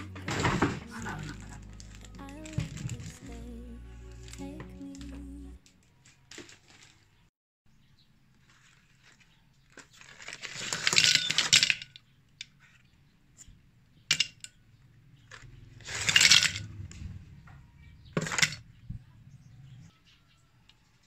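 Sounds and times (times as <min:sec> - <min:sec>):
metal capsules clattering into glass vase: 0:15.9 - 0:16.7.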